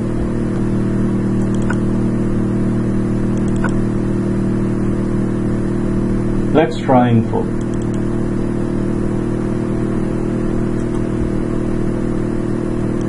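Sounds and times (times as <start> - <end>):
low electrical hum: 0.0 - 13.0
mouse clicks: 1.4 - 1.8, 3.4 - 3.8, 7.6 - 8.0, 10.8 - 11.1.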